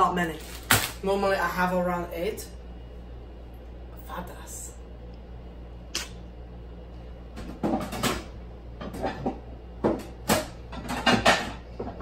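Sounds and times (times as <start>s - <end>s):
plates knocking and clinking: 7.4s - 12.0s.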